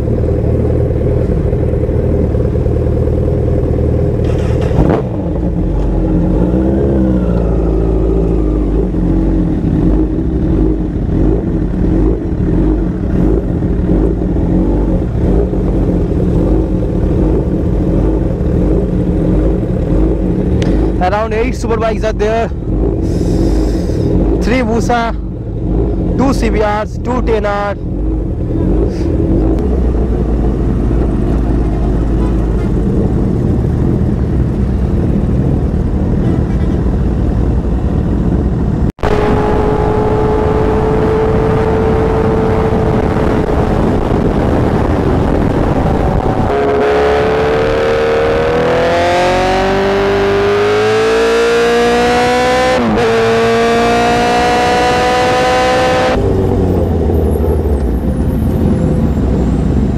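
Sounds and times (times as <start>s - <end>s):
wind rushing over microphone: 28.3s - 50.3s, 51.8s - 59.9s
motorbike engine revving: 38.7s - 58.7s.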